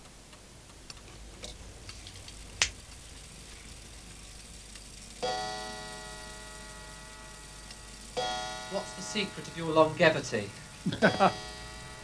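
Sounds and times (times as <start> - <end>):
clock gong ringing: 4.9 - 12.0.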